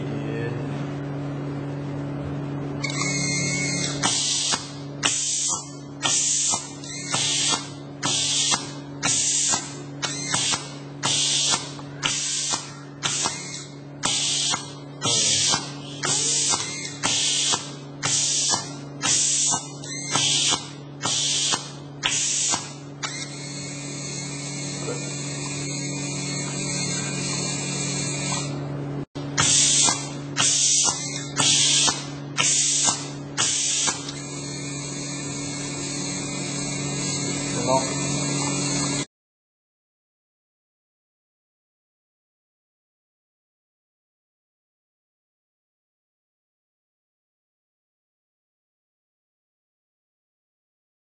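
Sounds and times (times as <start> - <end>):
steady machine hum: 0.0 - 39.1
compressed air hissing bursts: 4.0 - 23.4, 29.4 - 36.9.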